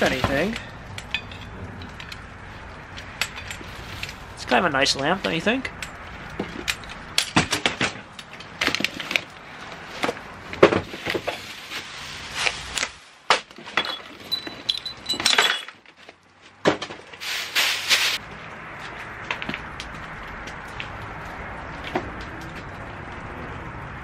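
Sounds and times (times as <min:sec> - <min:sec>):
wrapping crinkling and rustling: 0:03.6 - 0:04.4, 0:10.8 - 0:13.1
sharp knocks and clinks: 0:13.6 - 0:15.8.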